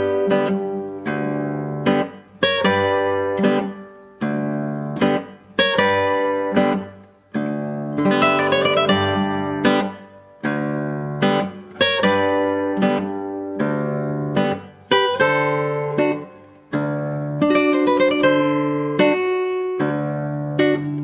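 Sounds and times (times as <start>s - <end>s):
acoustic guitar music: 0.0s - 21.0s.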